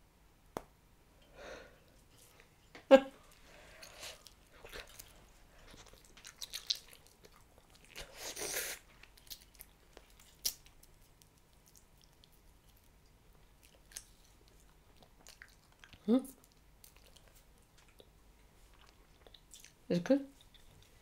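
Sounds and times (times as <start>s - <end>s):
gum chewing mouth smacks: 3.3s - 8.2s, 8.9s - 18.1s.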